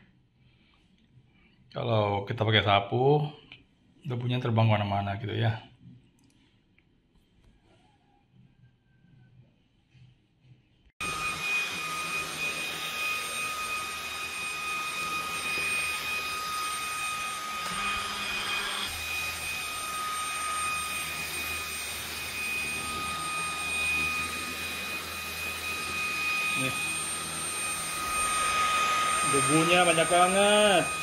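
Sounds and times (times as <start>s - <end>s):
stick vacuum running: 11.0s - 31.0s.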